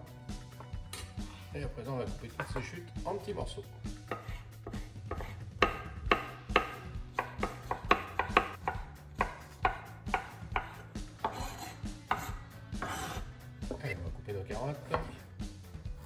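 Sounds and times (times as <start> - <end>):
knife chopping on wooden board: 4.0 - 13.8, 14.8 - 15.2.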